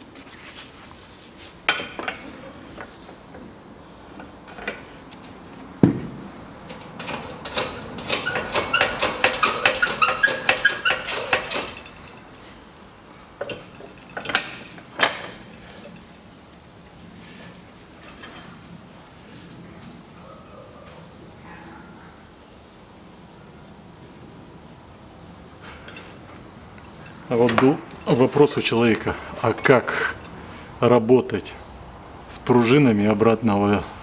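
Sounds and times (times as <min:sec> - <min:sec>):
metal clanks and clicks: 0:04.2 - 0:04.9, 0:06.7 - 0:12.3, 0:13.4 - 0:16.2
knocks: 0:05.8 - 0:06.2
heavy thump: 0:05.8 - 0:06.4.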